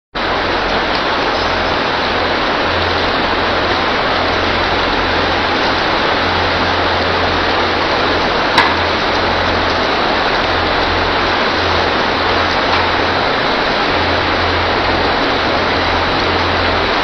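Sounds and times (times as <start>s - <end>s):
low mechanical hum: 0.2s - 17.0s.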